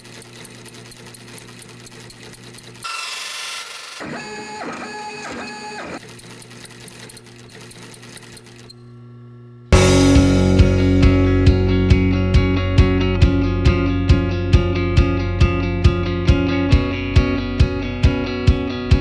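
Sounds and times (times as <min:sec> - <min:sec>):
sewing machine humming and ticking: 0:00.0 - 0:08.8
three d printer stepper motor tones: 0:00.2 - 0:09.0.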